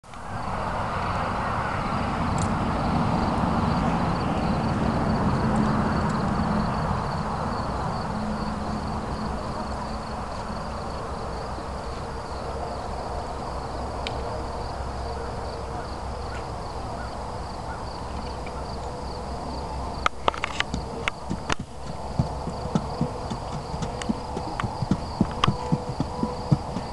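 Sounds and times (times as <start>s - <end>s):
insects chirring: 2.8s - 26.9s
horse hooves on wooden boards: 20.5s - 26.9s.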